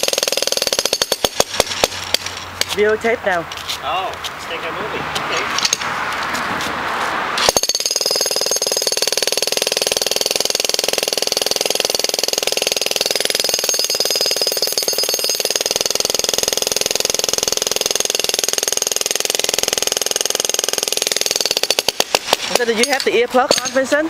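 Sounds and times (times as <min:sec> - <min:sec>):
electric jackhammer pounding concrete: 0:00.0 - 0:02.3, 0:07.4 - 0:23.0.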